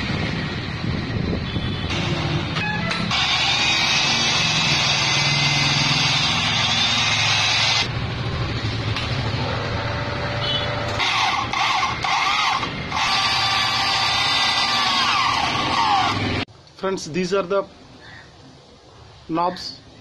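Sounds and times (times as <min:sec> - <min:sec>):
drill cutting metal squealing: 0:02.6 - 0:07.9, 0:10.9 - 0:16.4
drill motor running: 0:02.9 - 0:07.9, 0:10.8 - 0:16.5.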